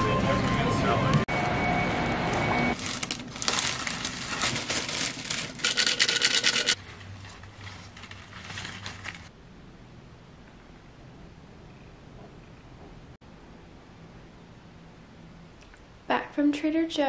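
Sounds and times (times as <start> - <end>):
cellophane crinkling: 2.8 - 9.3
flowers rustling in glass vase: 2.8 - 9.3.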